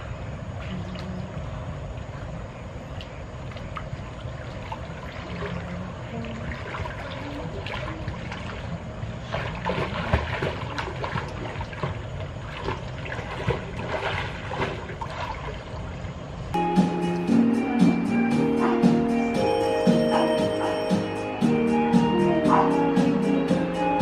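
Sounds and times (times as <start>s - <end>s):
water splashing in pool: 0.0s - 16.4s.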